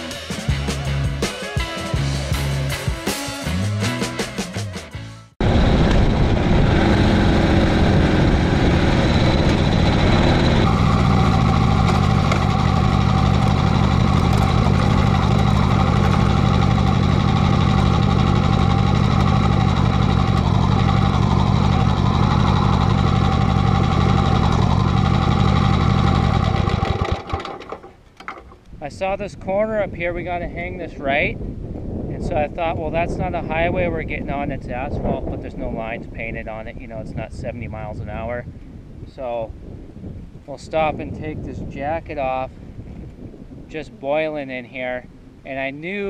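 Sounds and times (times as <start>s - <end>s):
motorcycle engine running: 5.4s - 28.0s.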